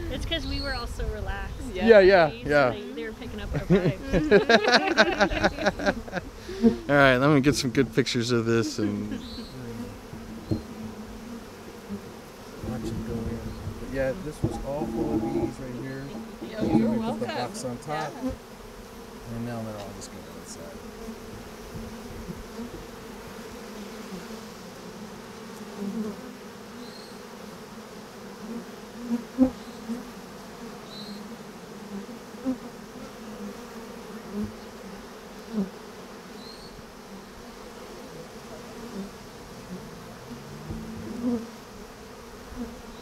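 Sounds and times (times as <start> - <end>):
bee colony humming: 0.0 - 43.0
bees buzzing past close up: 0.0 - 43.0.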